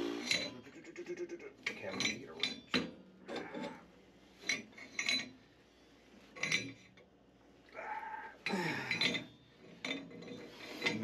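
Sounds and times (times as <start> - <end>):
metal rasping: 0.0 - 0.7, 8.4 - 11.0
metallic clinks with ringing: 0.2 - 0.7, 1.7 - 2.9, 8.4 - 11.0.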